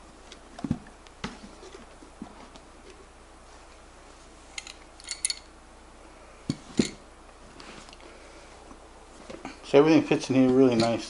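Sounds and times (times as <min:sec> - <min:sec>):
small metallic clinks: 0:04.6 - 0:05.5.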